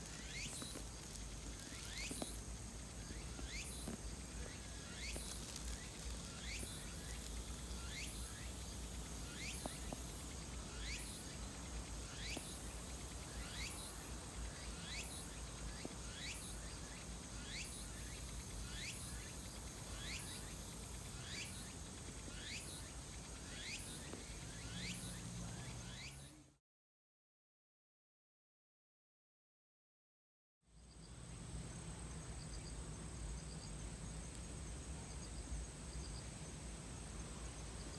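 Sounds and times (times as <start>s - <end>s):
insects hissing: 0.0s - 26.6s
short rising insect call: 0.0s - 26.6s.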